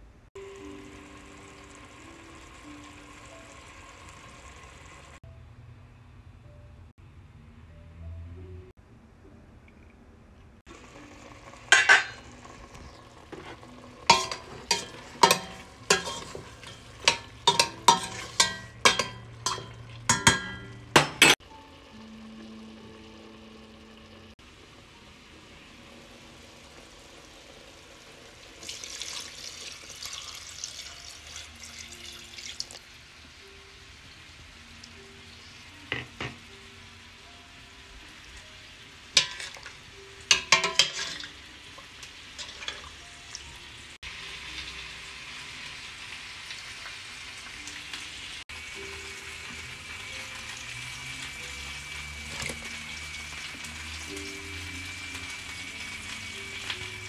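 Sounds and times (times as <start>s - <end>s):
soft background music: 0.0s - 57.0s
metal spoon scraping a pot: 13.3s - 21.4s, 40.3s - 41.3s
water splashing into a pot: 14.0s - 21.4s, 27.1s - 33.0s, 39.2s - 43.6s.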